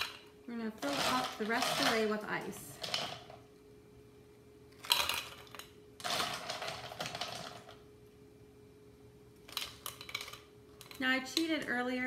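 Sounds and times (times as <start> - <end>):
ice cubes clattering into tumbler: 0.8 - 2.1, 4.8 - 7.8.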